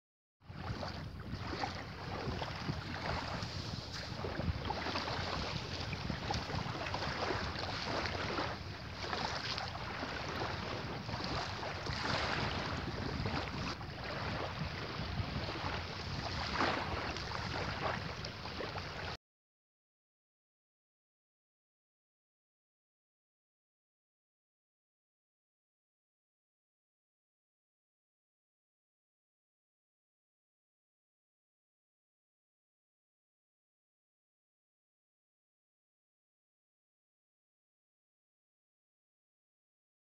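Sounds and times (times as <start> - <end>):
small waves washing onto shore: 0.5 - 19.2
wind on microphone: 0.5 - 19.2.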